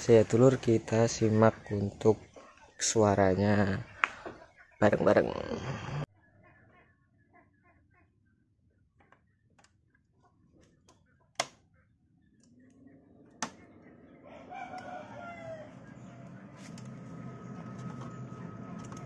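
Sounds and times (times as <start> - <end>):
low hum: 12.1 - 19.0
rooster crowing: 14.1 - 16.5.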